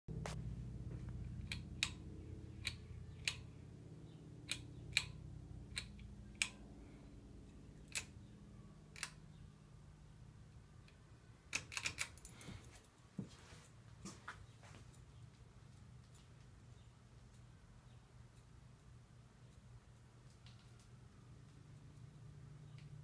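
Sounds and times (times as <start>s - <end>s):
low hum: 0.1s - 23.0s
sharp clicks: 1.3s - 3.6s, 4.4s - 6.6s, 7.8s - 8.3s, 8.9s - 9.3s, 10.8s - 12.3s.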